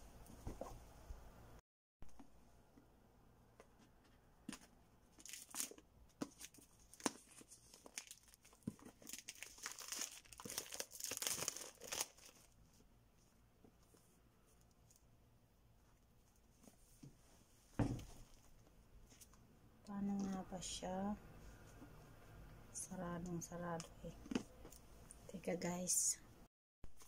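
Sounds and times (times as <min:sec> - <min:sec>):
shrink-wrap crinkling and tearing: 0:05.1 - 0:12.6
thump: 0:17.8 - 0:18.2.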